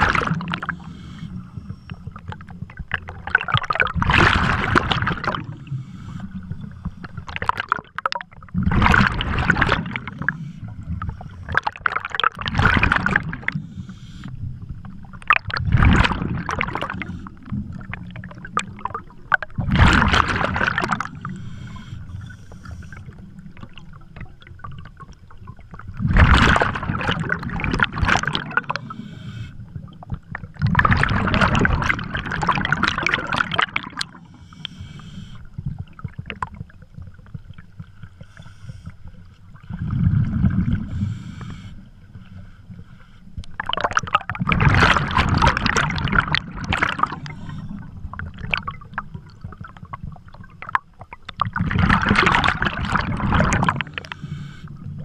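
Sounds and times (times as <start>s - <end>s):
bubbling bursts of exhaled air: 0.0s - 41.9s, 43.5s - 55.0s
diver breathing through regulator: 0.6s - 2.1s, 5.3s - 7.0s, 13.4s - 14.6s, 16.7s - 17.6s, 21.0s - 23.4s, 28.6s - 29.8s, 33.9s - 35.6s, 38.1s - 43.4s, 46.9s - 48.0s, 53.7s - 55.0s.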